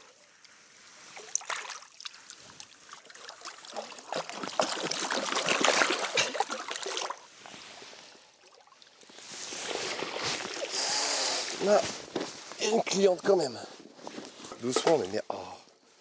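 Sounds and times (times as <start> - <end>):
fish thrashing and water splashing: 0.0 - 12.2.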